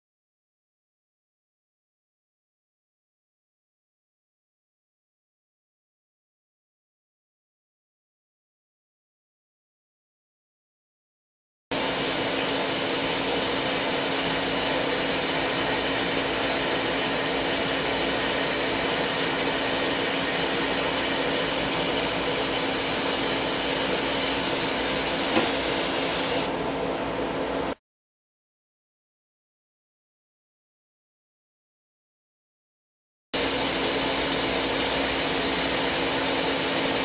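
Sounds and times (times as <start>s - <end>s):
lathe cutting hiss: 11.8s - 26.5s, 33.4s - 37.0s.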